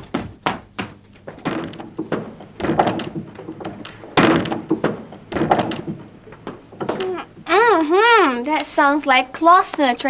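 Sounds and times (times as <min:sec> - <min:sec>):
machine thudding against shed door: 0:00.2 - 0:07.1.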